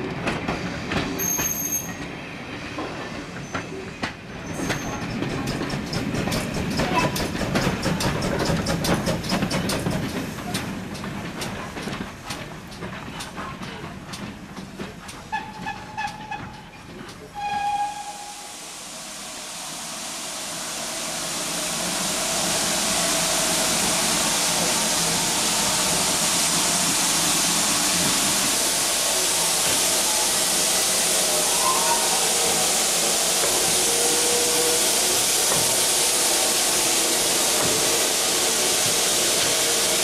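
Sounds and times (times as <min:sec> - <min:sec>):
steam locomotive releasing steam: 0:01.1 - 0:02.1, 0:15.3 - 0:40.0
steam locomotive whistle toots: 0:15.3 - 0:16.6, 0:17.3 - 0:18.9, 0:29.3 - 0:40.0.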